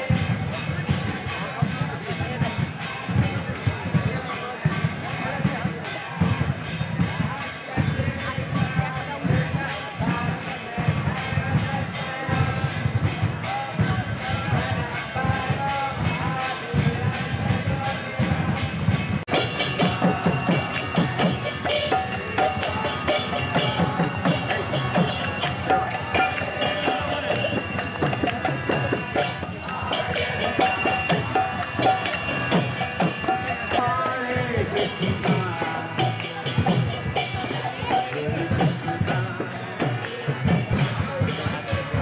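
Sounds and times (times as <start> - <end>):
drum playing: 0.0 - 42.0
jingling hand cymbals: 0.0 - 42.0
voices chanting: 19.3 - 42.0.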